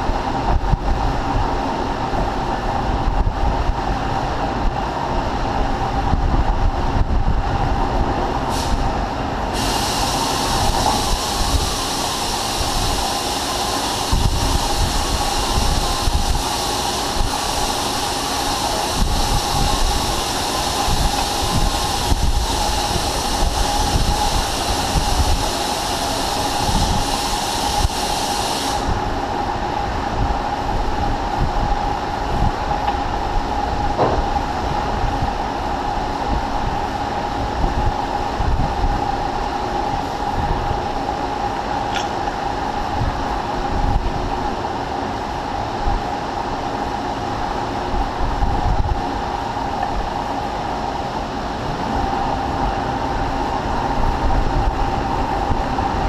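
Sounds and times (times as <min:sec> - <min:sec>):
machine shop hum and rumble: 0:00.0 - 0:56.0
high hiss: 0:08.5 - 0:29.1.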